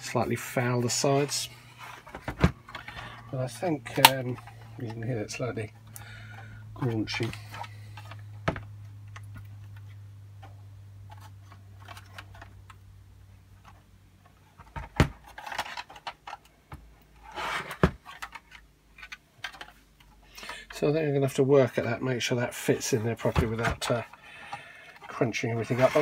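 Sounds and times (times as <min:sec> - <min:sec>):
hard plastic knocking and clattering: 0:02.0 - 0:03.0.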